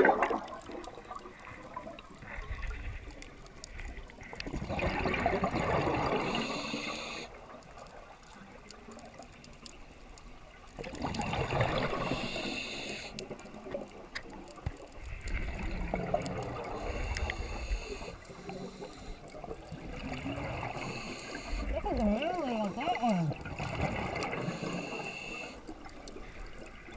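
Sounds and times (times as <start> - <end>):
bubbling exhaled air underwater: 0.0 - 2.8, 4.3 - 7.2, 10.8 - 13.8, 15.0 - 26.9.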